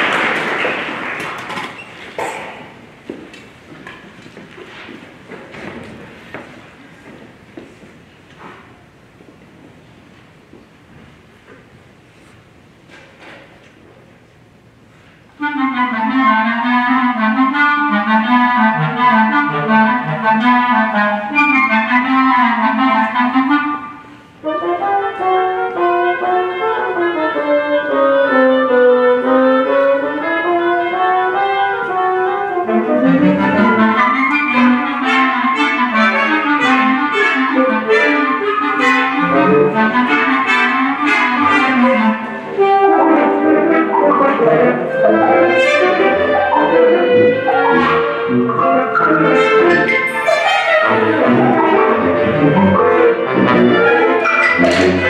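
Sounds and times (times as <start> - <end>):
wind band playing: 15.4 - 55.0.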